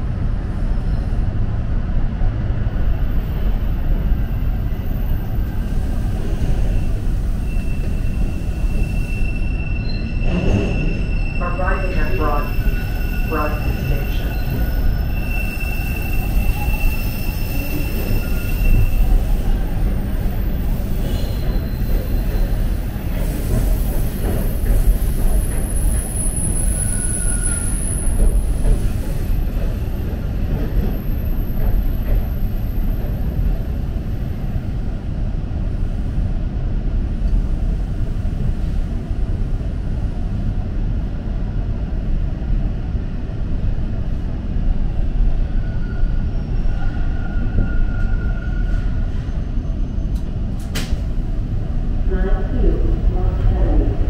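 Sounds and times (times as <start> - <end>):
train wheels rumbling on track: 0.0 - 54.0
faint wheel squeal: 6.6 - 11.6, 12.6 - 19.2, 26.1 - 28.2.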